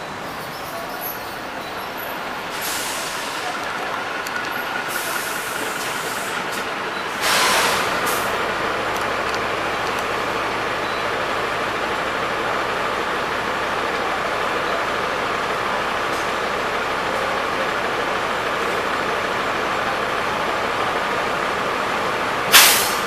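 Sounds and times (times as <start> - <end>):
diesel bus idling: 0.0 - 23.0
compressed air hiss: 2.5 - 4.2, 7.2 - 8.3, 22.5 - 23.0.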